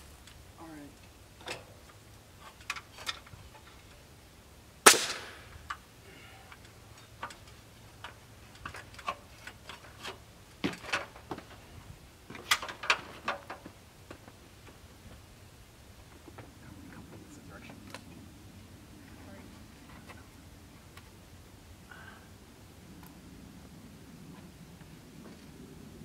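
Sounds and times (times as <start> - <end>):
loud sharp bang: 4.8 - 5.5.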